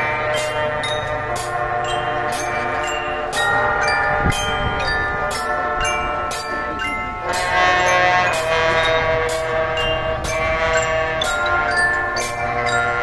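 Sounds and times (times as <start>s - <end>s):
brass chords: 0.0s - 13.0s
percussion beat: 0.0s - 13.0s.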